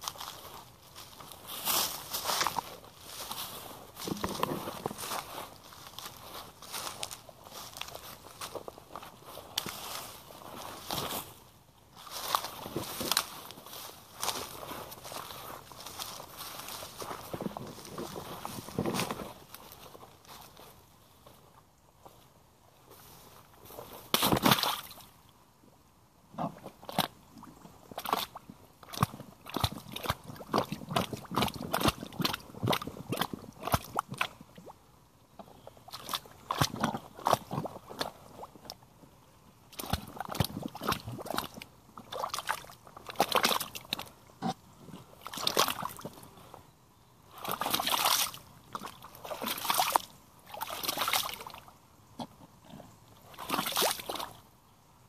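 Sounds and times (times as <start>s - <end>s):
boots splashing through mud: 0.0s - 8.6s, 24.1s - 25.1s, 27.9s - 34.4s, 35.9s - 38.8s, 39.7s - 44.1s, 45.2s - 46.2s, 47.4s - 51.6s, 53.3s - 54.4s.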